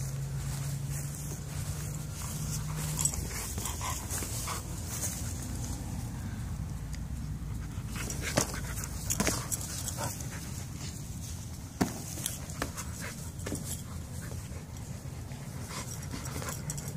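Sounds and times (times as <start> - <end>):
dog panting: 2.0 - 5.5, 12.3 - 16.9.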